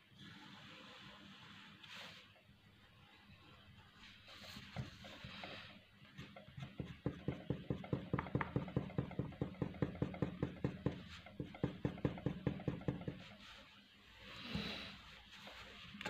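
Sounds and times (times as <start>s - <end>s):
pencil shading on paper: 4.5s - 13.7s.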